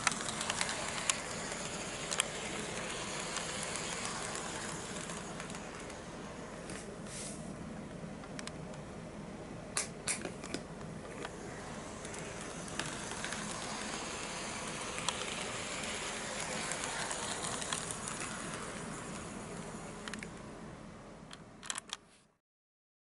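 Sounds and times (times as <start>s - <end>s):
wheels ticking over rail joints: 0.0s - 6.2s, 11.2s - 20.4s
model train motor whirring: 0.0s - 6.7s, 11.1s - 20.4s.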